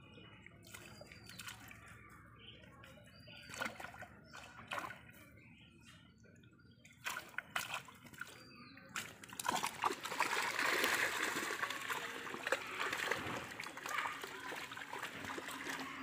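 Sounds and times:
fish thrashing and splashing: 7.0 - 16.0
water dripping: 9.0 - 16.0.

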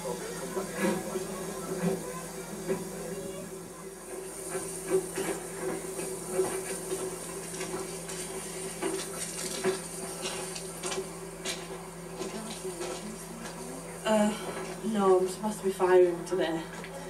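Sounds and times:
steady hum: 0.0 - 17.0
railway wagons rattling and clanking: 4.0 - 16.6.

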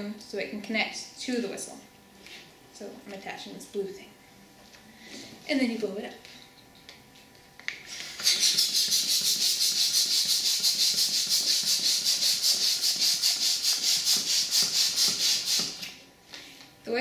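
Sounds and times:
balloon pump hissing: 7.8 - 15.9.

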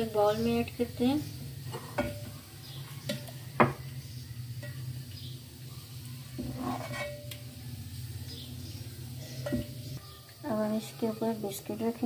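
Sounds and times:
ladle scraping with ring: 6.4 - 7.3
metal ladle clinking on pot: 6.4 - 7.4.

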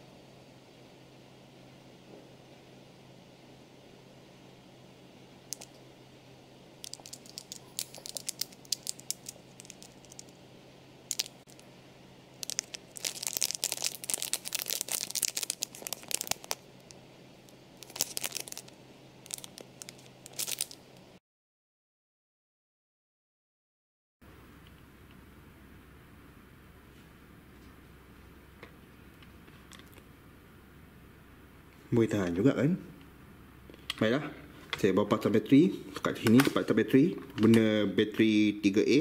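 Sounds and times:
faint steady hum: 0.0 - 21.2, 24.2 - 39.0
plastic packet crinkling: 6.8 - 10.4, 11.1 - 11.6, 12.4 - 17.0, 17.8 - 20.8.

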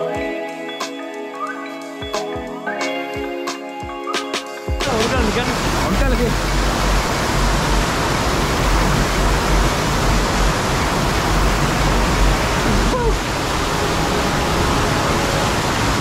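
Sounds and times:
waterfall rushing over rock: 4.8 - 16.0.

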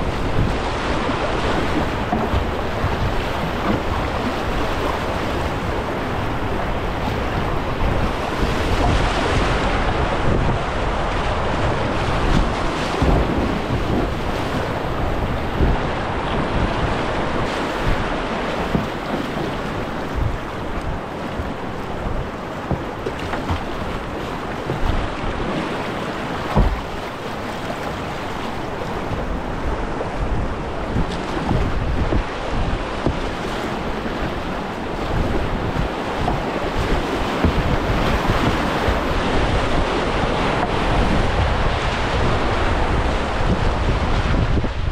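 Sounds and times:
rushing river rapids: 0.0 - 44.9
wind buffeting microphone: 0.0 - 44.9
low thumps: 26.5 - 27.0.

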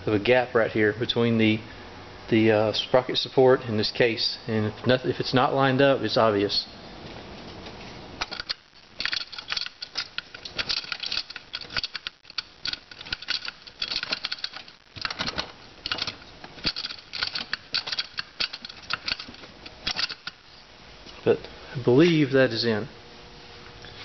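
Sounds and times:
metal parts clicking and rattling: 8.2 - 20.5.

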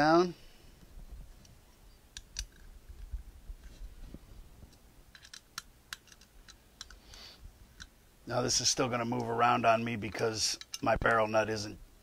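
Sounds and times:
allen wrench metallic clicks: 5.1 - 7.0.

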